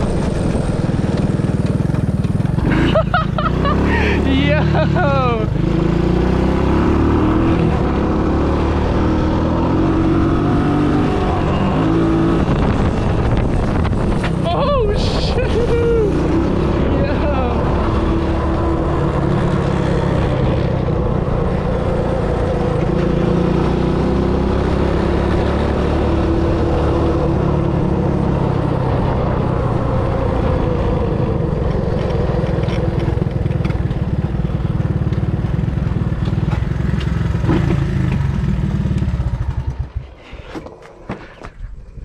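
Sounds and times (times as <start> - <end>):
atv engine running: 0.0 - 40.5.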